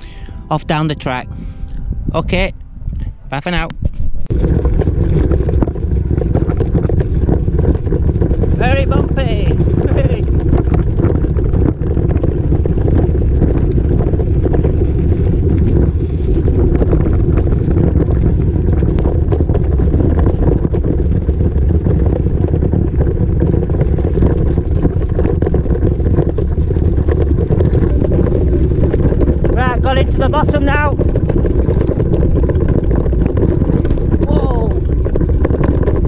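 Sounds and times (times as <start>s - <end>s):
wind buffeting microphone: 0.0s - 36.0s
bike rattling over gravel: 3.4s - 36.0s.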